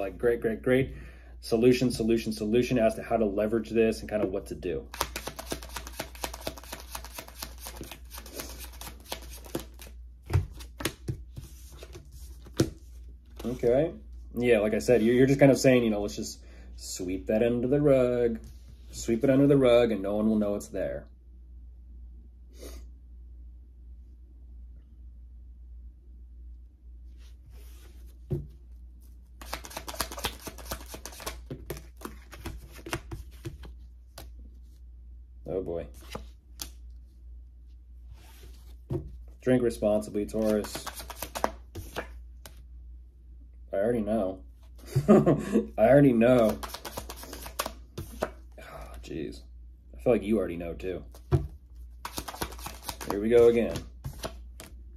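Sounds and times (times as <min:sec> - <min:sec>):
cards tapping: 0:04.9 - 0:12.8, 0:29.4 - 0:34.3, 0:40.4 - 0:42.6, 0:46.3 - 0:48.4, 0:51.1 - 0:54.8
cards being shuffled: 0:04.9 - 0:13.6, 0:27.5 - 0:34.4, 0:35.9 - 0:37.0, 0:40.2 - 0:42.6, 0:46.1 - 0:49.0, 0:51.1 - 0:54.8.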